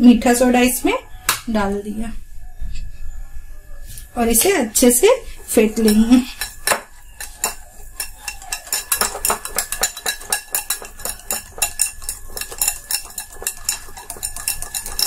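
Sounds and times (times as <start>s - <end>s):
wet stirring of batter: 5.3s - 15.0s
whisk clinking against glass bowl: 5.4s - 15.0s.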